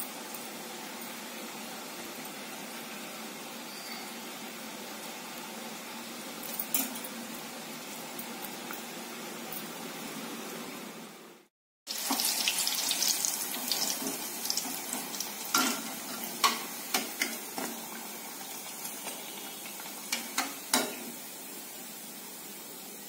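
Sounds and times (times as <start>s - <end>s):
fritters sizzling in hot oil: 11.9s - 23.0s.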